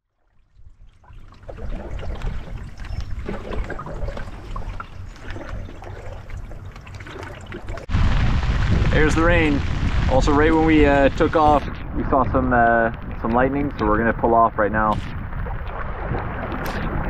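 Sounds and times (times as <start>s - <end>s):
water trickling and splashing: 0.0s - 17.0s
low rumble: 7.8s - 17.0s.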